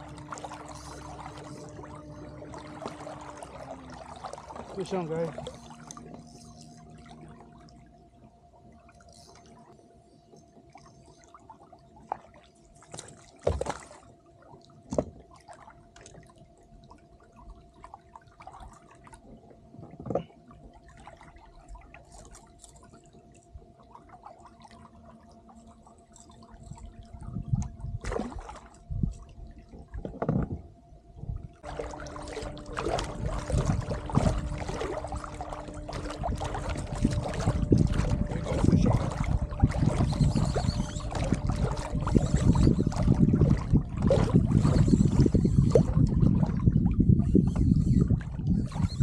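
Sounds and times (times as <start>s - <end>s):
water splashing: 0.0s - 7.9s, 28.0s - 28.9s, 31.6s - 49.0s.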